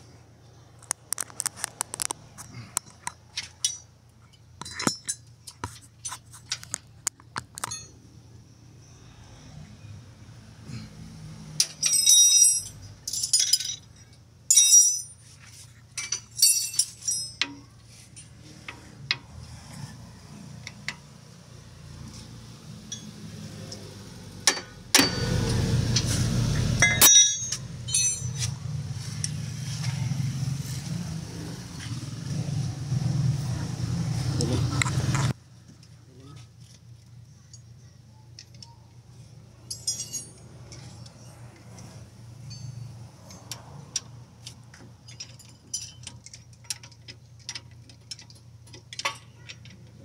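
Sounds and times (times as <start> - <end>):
metal tools clinking: 2.8 - 6.8, 7.5 - 8.0, 11.6 - 18.9, 26.8 - 29.4, 39.6 - 41.4, 42.4 - 43.7, 44.5 - 50.0.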